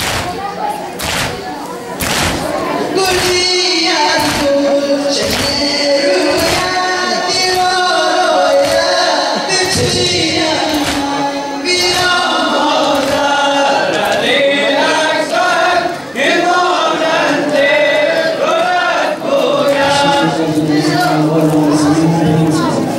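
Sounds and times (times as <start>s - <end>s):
chest-beating slaps: 1.0s - 1.4s, 2.0s - 2.4s, 9.7s - 11.2s
crowd of men chanting: 2.0s - 22.8s.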